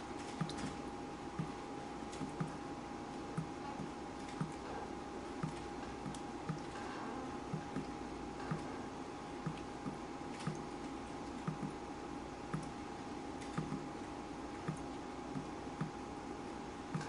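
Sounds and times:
water dripping: 0.4 - 0.7, 5.4 - 6.8, 9.4 - 11.8.

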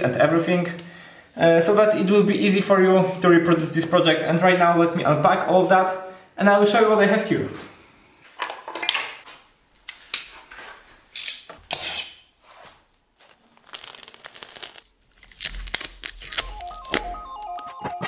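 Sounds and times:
plastic wrap crinkling and ripping: 12.6 - 17.6
background music: 16.4 - 18.0.

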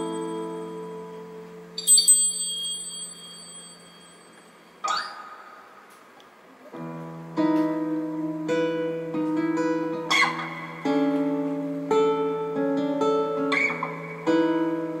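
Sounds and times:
small metal bell ringing: 0.0 - 1.0, 1.8 - 5.0
acoustic guitar picked notes: 0.0 - 15.0.

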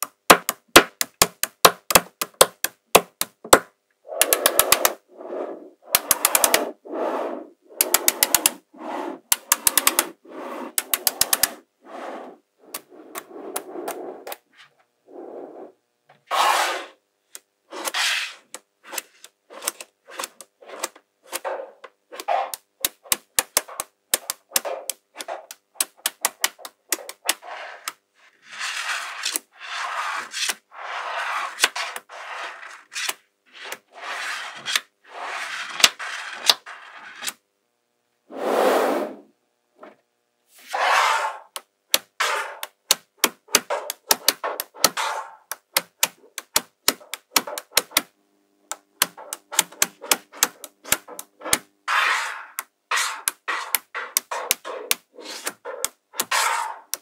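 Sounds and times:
magnetic balls clicking together: 0.0 - 5.0, 5.9 - 6.7, 7.7 - 8.6, 9.3 - 11.6, 22.1 - 28.0, 41.5 - 48.1, 48.7 - 51.7, 52.5 - 57.0
balls scraping and rattling on table: 4.1 - 17.0, 17.7 - 37.4, 40.5 - 41.6, 42.2 - 42.8, 43.4 - 48.0, 49.0 - 57.0.

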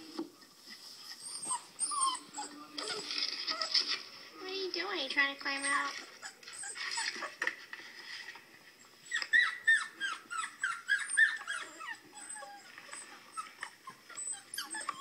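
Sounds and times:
puppies whimpering through speaker: 0.4 - 4.0, 5.5 - 7.4, 8.8 - 15.0.

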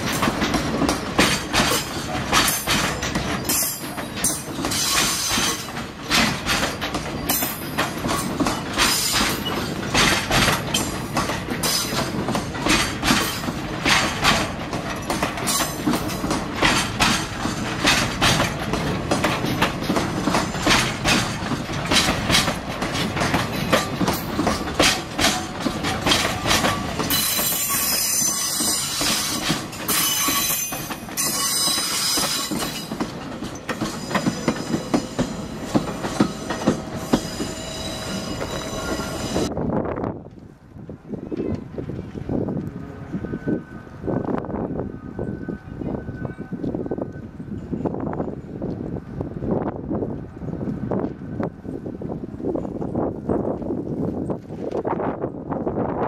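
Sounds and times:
train wheels clacking over rail joints: 0.0 - 39.5
high-pitched wheel squeal: 27.1 - 32.8, 36.0 - 39.5.

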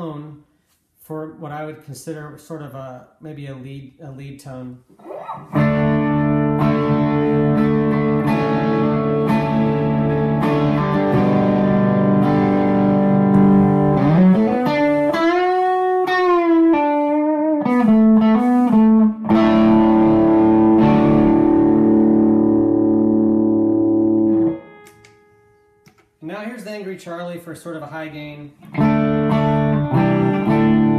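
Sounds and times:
overdriven electric guitar lead: 5.0 - 25.9, 28.6 - 30.9.

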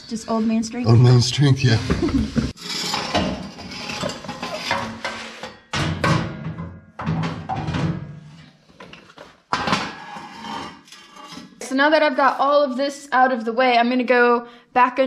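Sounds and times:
metal pipe scraping on concrete: 2.5 - 5.7, 8.2 - 12.3.

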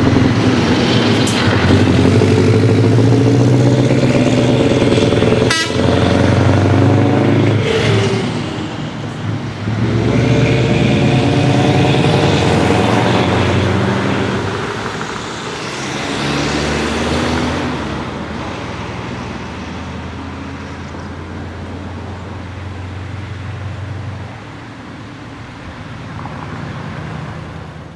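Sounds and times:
lorry engine pulling away: 0.0 - 8.4, 9.2 - 18.2.

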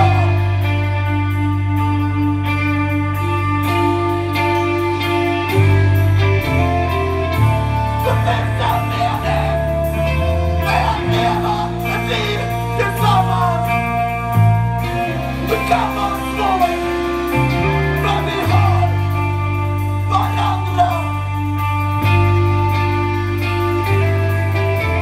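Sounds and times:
man singing: 0.0 - 1.0, 7.6 - 14.2, 15.0 - 21.4
bass guitar: 0.0 - 25.0
electric guitars: 0.0 - 25.0.

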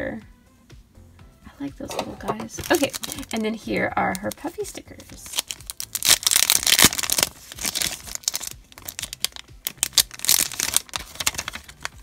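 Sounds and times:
plastic bag crinkling: 2.4 - 3.5, 5.2 - 12.0.

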